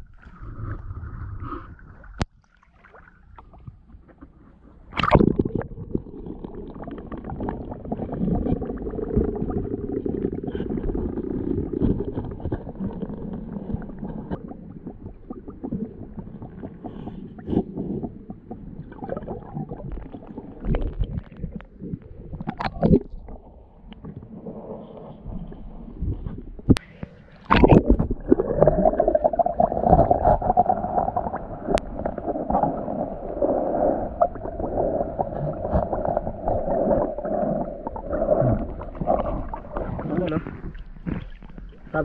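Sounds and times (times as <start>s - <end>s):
water sloshing underwater: 0.0s - 42.0s
sharp water splashes: 2.3s - 3.5s, 4.9s - 5.5s.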